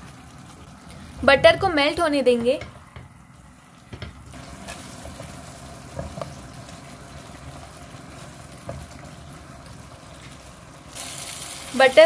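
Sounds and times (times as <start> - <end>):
butter sizzling in hot oil: 3.4 - 12.0.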